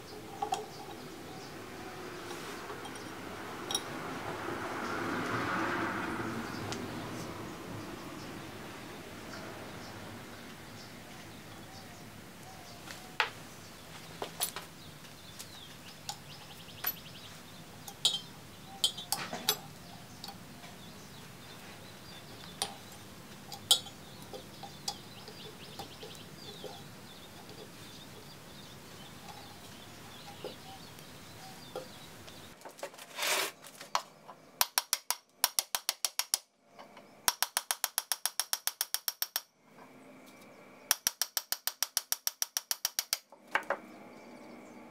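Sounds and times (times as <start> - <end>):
small metal clicks and taps: 33.9 - 39.5, 40.9 - 43.8.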